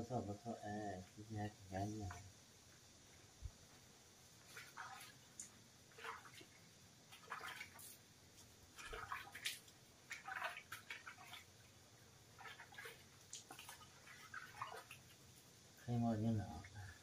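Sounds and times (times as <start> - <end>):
water splashing in a plastic bucket: 4.4 - 8.1, 8.7 - 15.5.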